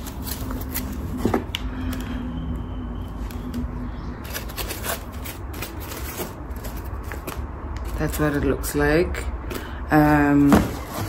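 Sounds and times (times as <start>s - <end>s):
packaging rustling and crinkling: 0.0s - 2.0s, 4.2s - 8.4s, 10.4s - 11.0s.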